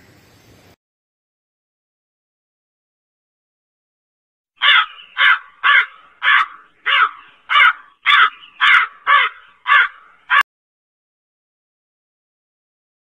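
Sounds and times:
crow cawing: 0:04.6 - 0:10.4.

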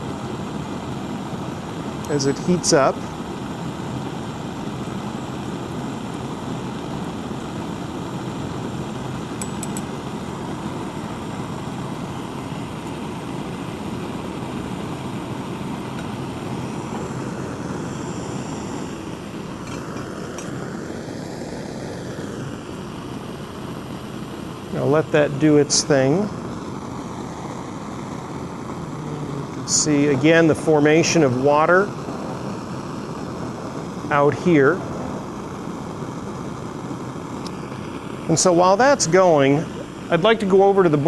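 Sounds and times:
bunsen burner flames rushing: 0:00.0 - 0:41.0
faint clinks: 0:09.4 - 0:09.9.

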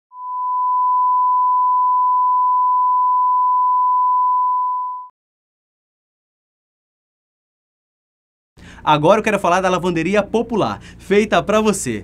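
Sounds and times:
steady line-up tone beep: 0:00.2 - 0:05.1.

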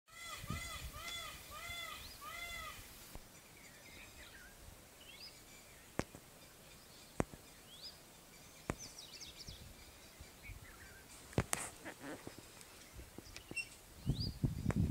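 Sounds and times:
peacock calling: 0:00.1 - 0:03.0, 0:09.8 - 0:13.8
faint small-bird chirps: 0:12.8 - 0:14.7.

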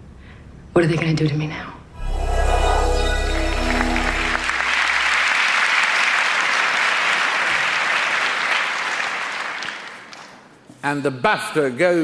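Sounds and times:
music chord with deep bass: 0:02.0 - 0:05.2
audience applauding: 0:03.5 - 0:10.4.

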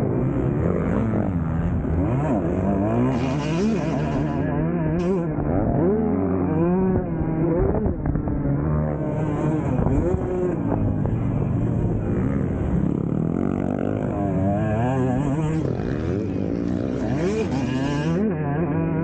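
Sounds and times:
dirt bike engine revving: 0:00.0 - 0:19.0.

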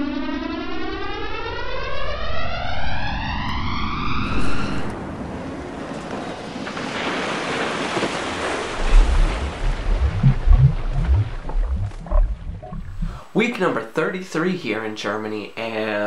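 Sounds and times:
rising swept synth tone: 0:00.0 - 0:04.9, 0:08.8 - 0:13.2
deep low thumps: 0:08.8 - 0:13.3
steady rushing noise: 0:08.8 - 0:13.3.

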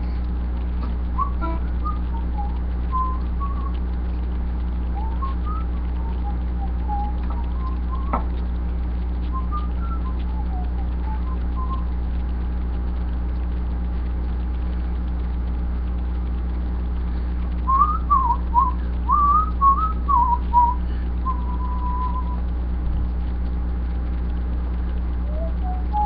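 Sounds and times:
steady low hum: 0:00.0 - 0:26.0
man whistling a tune: 0:01.2 - 0:03.7, 0:05.0 - 0:08.3, 0:09.4 - 0:11.9, 0:17.7 - 0:22.4, 0:25.3 - 0:26.0.

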